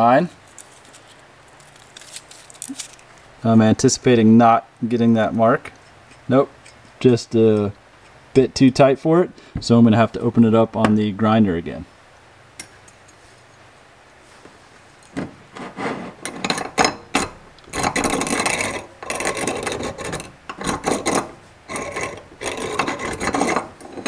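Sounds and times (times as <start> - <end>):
hand-cranked filer rasping: 17.7 - 24.0.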